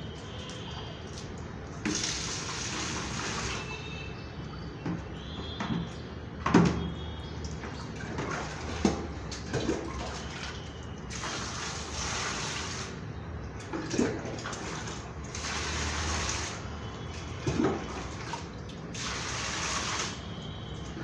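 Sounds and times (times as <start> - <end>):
water splashing in plastic bucket: 0.0 - 21.0.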